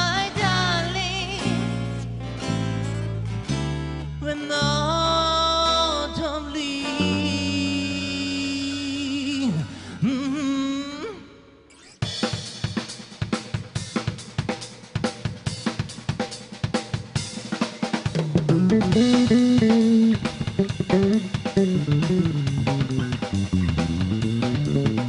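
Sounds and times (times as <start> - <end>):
sustained melody line: 6.8 - 8.4, 18.4 - 25.0
rock drum kit: 12.0 - 25.0.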